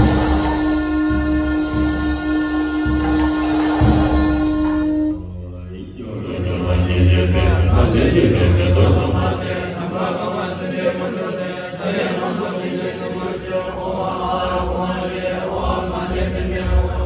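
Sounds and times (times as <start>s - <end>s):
monks chanting in unison: 0.0s - 17.0s.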